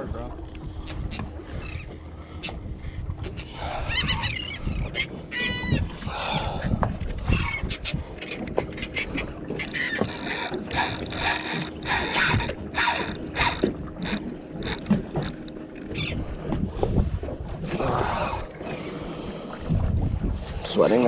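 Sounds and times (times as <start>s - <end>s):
fishing reel gears whirring: 7.2s - 16.3s.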